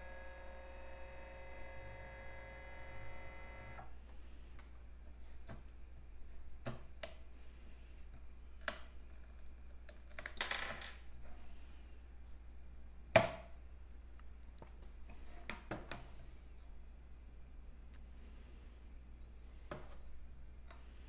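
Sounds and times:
steady whine: 0.0 - 4.4.

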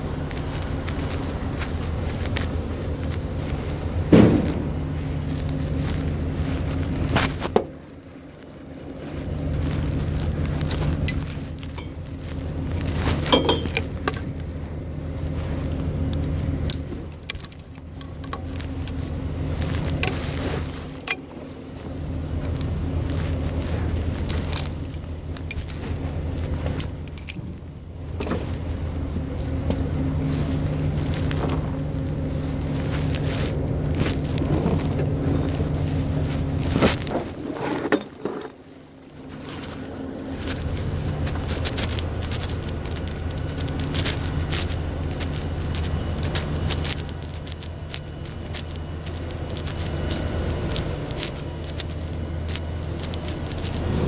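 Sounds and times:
heavy machinery engine running: 0.0 - 54.0
clicks and rattles: 24.2 - 28.8.

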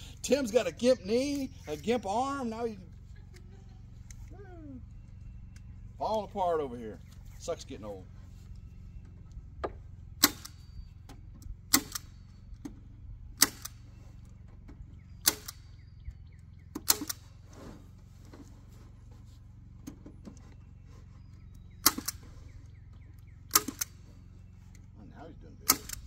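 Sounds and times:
staple gun firing: 10.2 - 10.6, 11.7 - 12.1, 13.4 - 13.8, 15.2 - 15.6, 21.8 - 22.2, 23.5 - 24.0, 25.6 - 26.0.

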